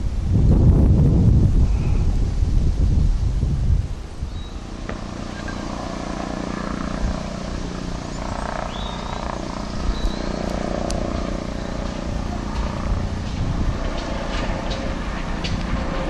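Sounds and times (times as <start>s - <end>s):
low engine hum: 0.0s - 16.0s
wind rumble on microphone: 0.0s - 16.0s
birds chirping: 4.2s - 16.0s.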